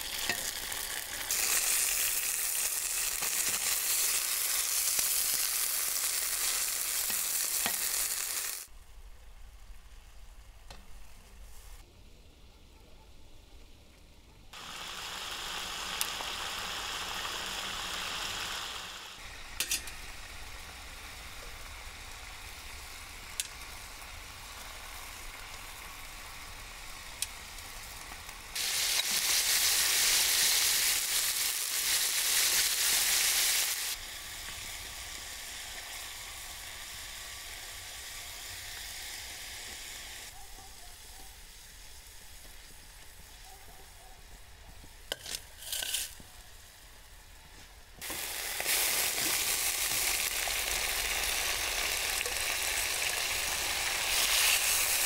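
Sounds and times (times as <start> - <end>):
meat sizzling in oil: 0.0 - 8.7, 14.6 - 40.3, 48.0 - 55.0.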